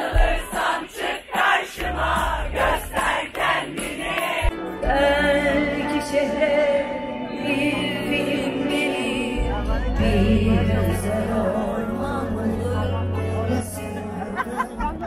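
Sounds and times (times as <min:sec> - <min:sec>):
crowd noise: 0:00.0 - 0:15.0
steady bass: 0:01.8 - 0:03.2, 0:07.4 - 0:15.0.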